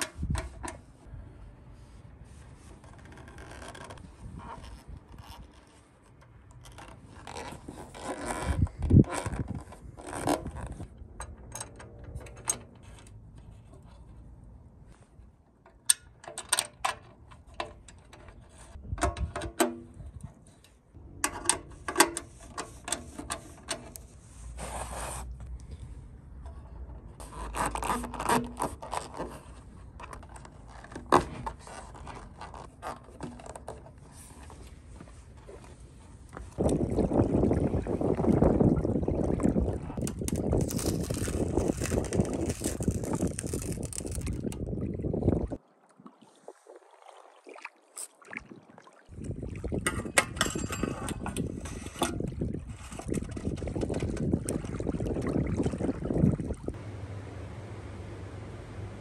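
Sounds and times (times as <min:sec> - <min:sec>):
rubber scraping on metal tank: 0:27.0 - 0:36.7, 0:39.9 - 0:44.5, 0:50.0 - 0:54.4.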